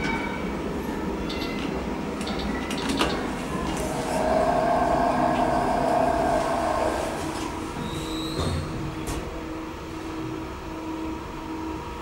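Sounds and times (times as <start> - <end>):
train rumbling: 0.0 - 12.0
high whine: 3.7 - 7.9.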